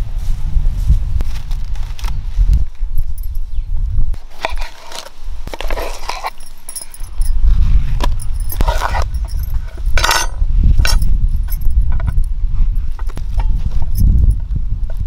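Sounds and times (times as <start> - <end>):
wind rumble on microphone: 0.0 - 15.0
bangles jingling: 3.0 - 3.6, 6.2 - 14.4
knife scraping on chopping board: 4.3 - 6.4, 8.6 - 10.3.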